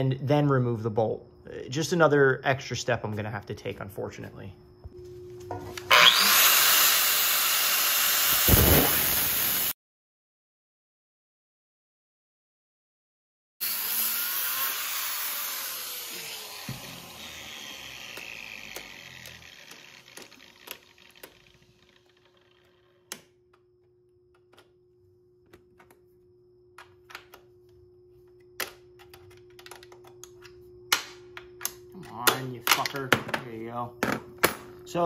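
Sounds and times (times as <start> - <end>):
angle grinder cutting metal: 5.8 - 9.7, 13.6 - 22.7.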